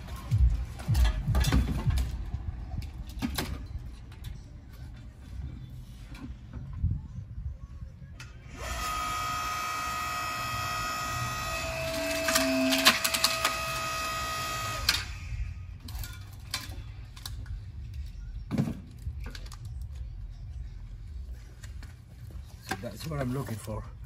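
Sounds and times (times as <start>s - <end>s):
electric log splitter whining: 8.4s - 15.6s.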